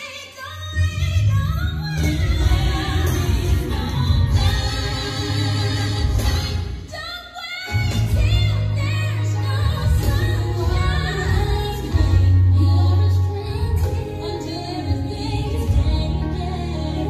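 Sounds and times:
gospel singing: 1.7s - 17.0s
heavy bass line: 7.7s - 17.0s.

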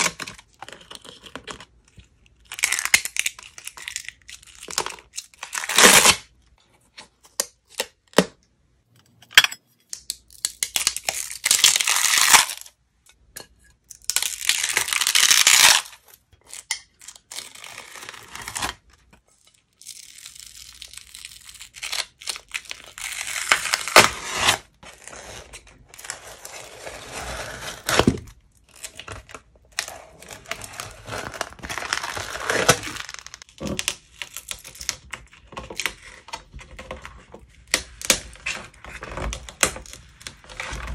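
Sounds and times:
slime film peeling crackly: 14.0s - 18.9s, 27.8s - 36.0s.

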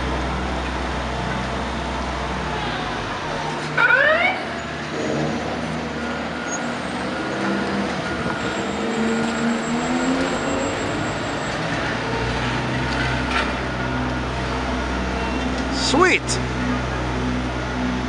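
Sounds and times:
fire engine diesel accelerating: 0.0s - 18.0s
heavy truck deep rumble: 0.0s - 18.0s.

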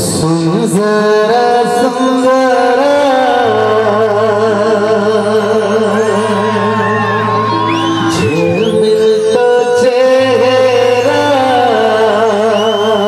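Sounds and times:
man singing through pa: 0.0s - 13.0s.

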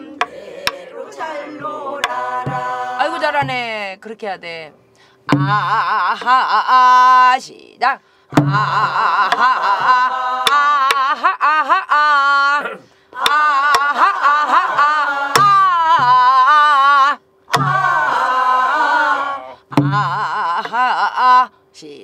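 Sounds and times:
barrel drum struck with stick: 2.0s - 3.6s, 5.3s - 5.8s, 8.3s - 9.4s, 17.5s - 17.9s, 19.7s - 20.1s
woman singing folk song: 2.0s - 4.5s, 5.3s - 17.2s, 19.7s - 22.0s.

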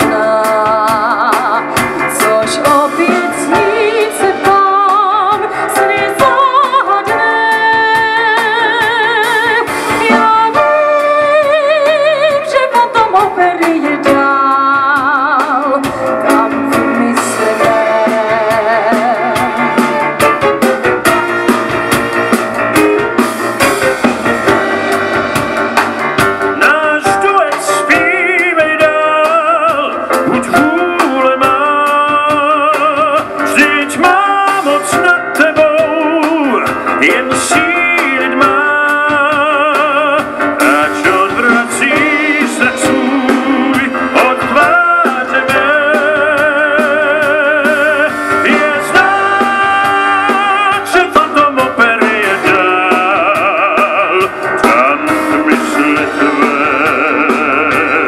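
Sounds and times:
man singing with vibrato: 0.0s - 21.5s, 26.1s - 58.0s
drum kit rock beat: 0.0s - 58.0s.

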